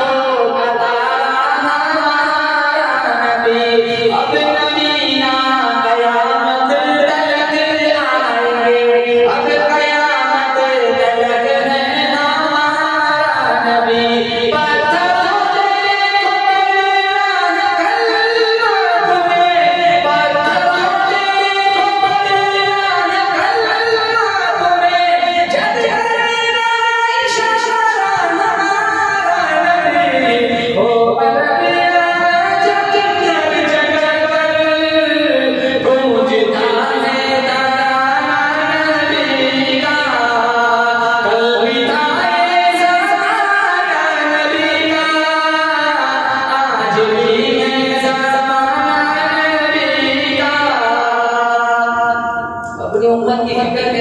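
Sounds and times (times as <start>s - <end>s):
man singing devotional song: 0.0s - 54.0s.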